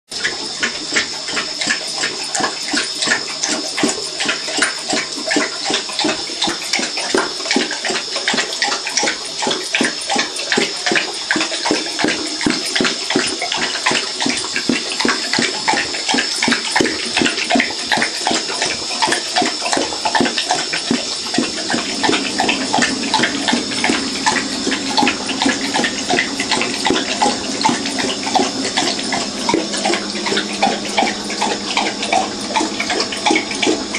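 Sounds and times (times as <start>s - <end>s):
dog lapping water: 0.1s - 33.9s
water running into bowl: 0.2s - 33.9s
low steady hum: 21.0s - 33.9s.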